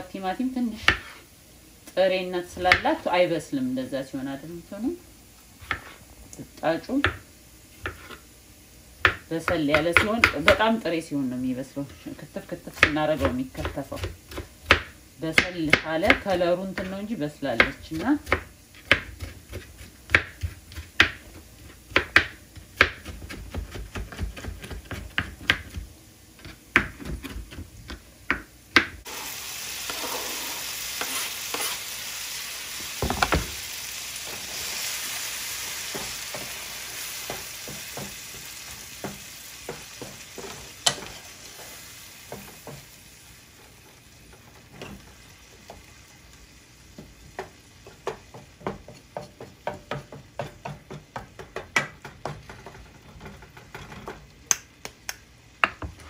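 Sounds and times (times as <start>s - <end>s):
tomato sizzling in hot oil: 0.0s - 54.8s
wooden spatula scraping pan: 0.8s - 1.3s, 5.6s - 6.1s, 7.8s - 8.2s, 29.8s - 31.9s, 34.2s - 42.8s
knife chopping on plastic board: 5.6s - 6.0s, 17.6s - 25.8s, 26.4s - 29.0s.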